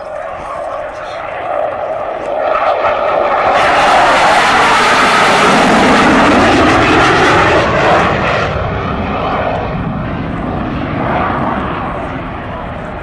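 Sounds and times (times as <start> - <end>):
fighter jet roar: 0.0 - 13.0.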